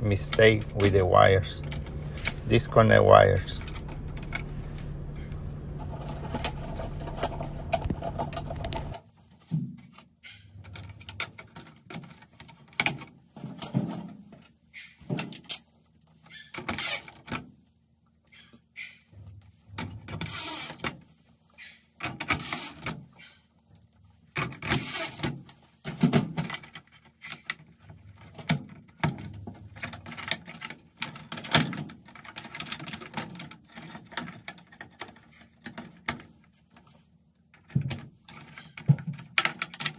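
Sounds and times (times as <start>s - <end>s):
steady hum: 0.0s - 9.0s
wire connectors handled: 0.0s - 9.0s, 19.5s - 39.9s.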